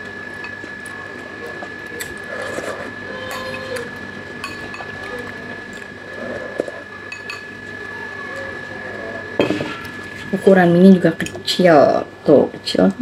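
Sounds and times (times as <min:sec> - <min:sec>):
steady high-pitched hum: 0:00.0 - 0:13.0
mouth sounds of eating: 0:00.9 - 0:03.9
metal spoon clinking against bowl: 0:04.4 - 0:04.9.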